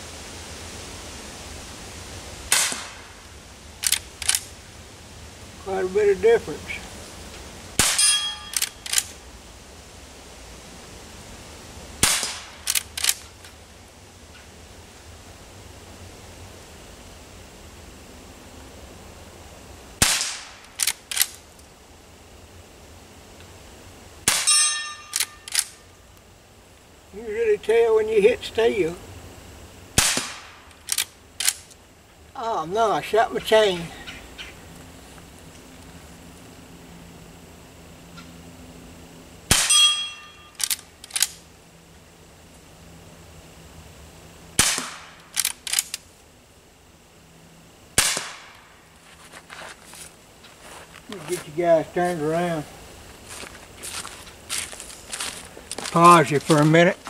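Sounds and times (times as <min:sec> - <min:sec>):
rifle shots: 0:02.5 - 0:03.0, 0:07.8 - 0:09.1, 0:12.0 - 0:13.2, 0:20.0 - 0:21.3, 0:24.2 - 0:25.6, 0:30.0 - 0:31.6, 0:39.5 - 0:40.0, 0:44.6 - 0:45.8, 0:48.0 - 0:48.6
steel target ringing: 0:07.8 - 0:08.6, 0:24.3 - 0:25.5, 0:39.5 - 0:40.6.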